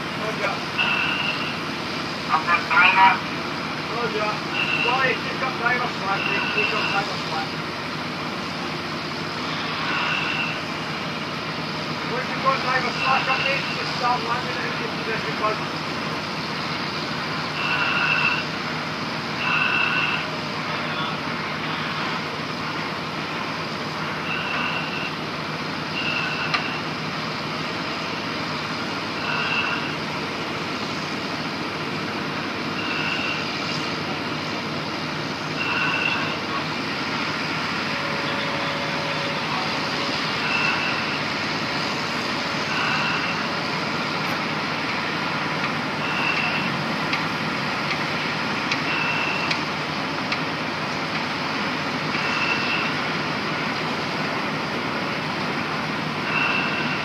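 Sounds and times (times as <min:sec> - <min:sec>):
heavy diesel plant running: 0:00.0 - 0:57.0
short high beeps: 0:00.8 - 0:01.6, 0:24.3 - 0:25.1, 0:32.8 - 0:33.4, 0:35.6 - 0:36.4, 0:40.4 - 0:41.2, 0:46.0 - 0:46.7, 0:48.9 - 0:49.5, 0:52.2 - 0:53.0, 0:56.3 - 0:57.0.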